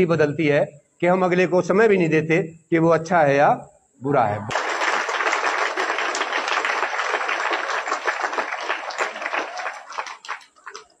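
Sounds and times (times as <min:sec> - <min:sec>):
audience applause: 0:04.5 - 0:11.0.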